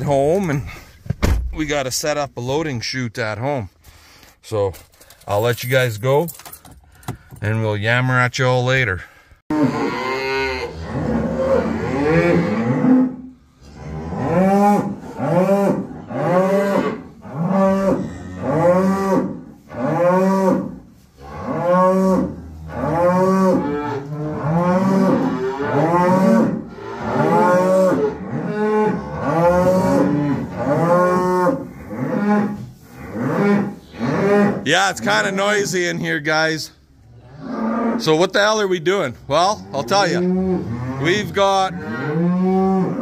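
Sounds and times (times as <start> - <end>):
cattle mooing: 9.5 - 35.7, 37.1 - 38.3, 39.3 - 43.0.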